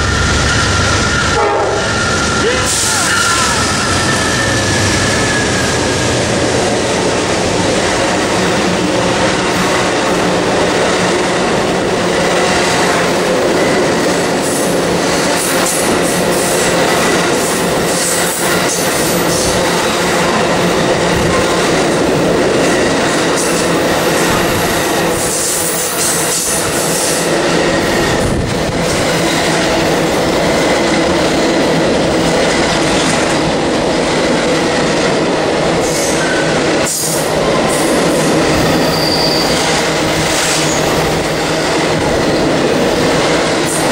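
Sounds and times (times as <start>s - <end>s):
train wheels rumbling on rails: 0.0s - 43.9s
faint wheel squeal: 38.8s - 39.6s.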